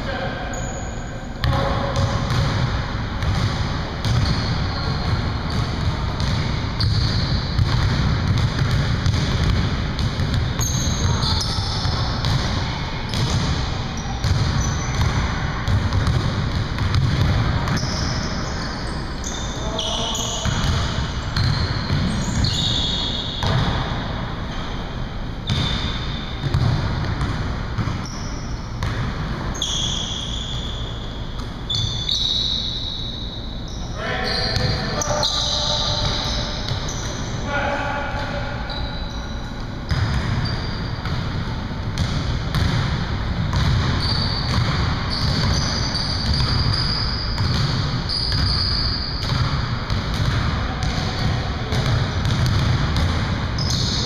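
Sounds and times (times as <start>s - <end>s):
sneaker squeaks: 0.1s - 42.8s, 43.5s - 54.0s
basketball bouncing on wooden floor: 1.4s - 12.5s, 14.2s - 18.0s, 25.4s - 28.1s, 39.9s - 41.3s, 41.9s - 54.0s.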